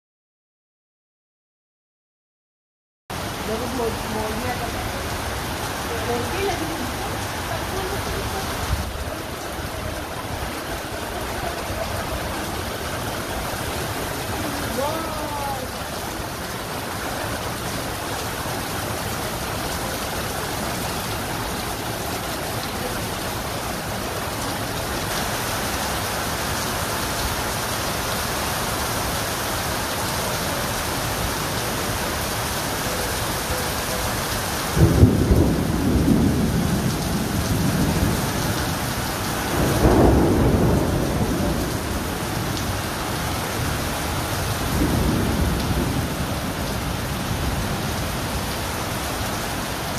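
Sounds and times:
heavy rain on stone paving: 0:03.1 - 0:49.9
low thunder rumbles: 0:34.7 - 0:48.8.

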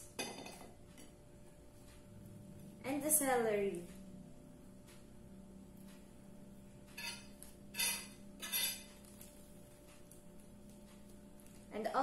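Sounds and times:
faint steady hum: 0:00.0 - 0:12.0
spoon scraping ceramic plate: 0:07.0 - 0:08.9.

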